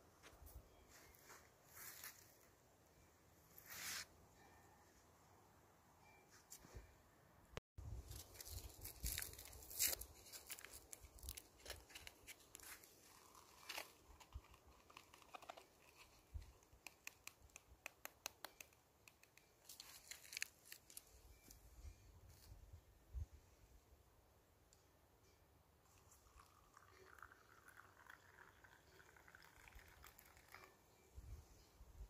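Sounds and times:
packet rustling and tearing: 0:08.2 - 0:17.6, 0:19.6 - 0:21.0
granules crackling into plastic cup: 0:08.3 - 0:21.0.

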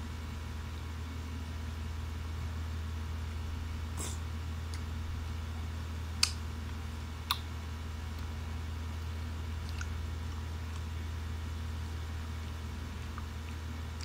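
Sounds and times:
steady low hum: 0:00.0 - 0:14.0
quiet chewing: 0:09.0 - 0:11.0, 0:13.0 - 0:14.0.

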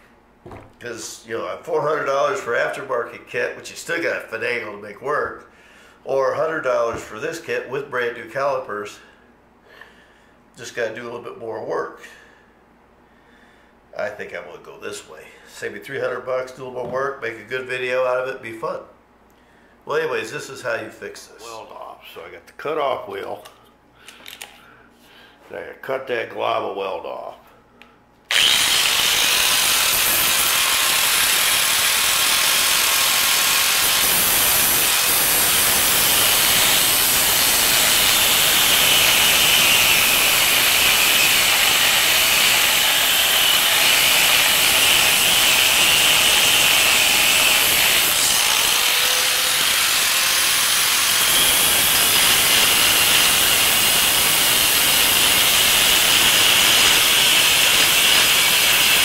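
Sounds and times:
grinder cutting metal: 0:28.3 - 0:59.0.

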